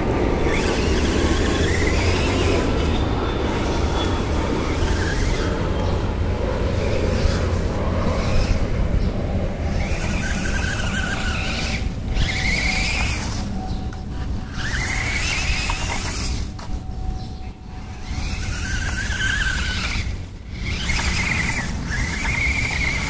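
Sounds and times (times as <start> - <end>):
steady low rumble: 0.0 - 15.6
small electric motor whining: 0.0 - 23.0.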